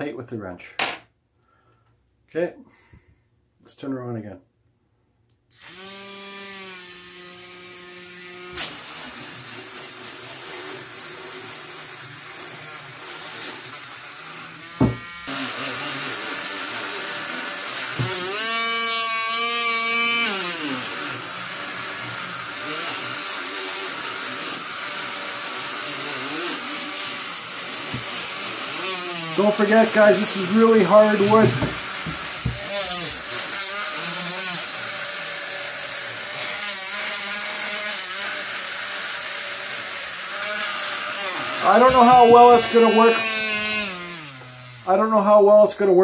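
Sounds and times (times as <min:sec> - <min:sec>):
rotary tool motor whining: 0:10.6 - 0:44.9
abrasive disc grinding wood: 0:12.4 - 0:44.9.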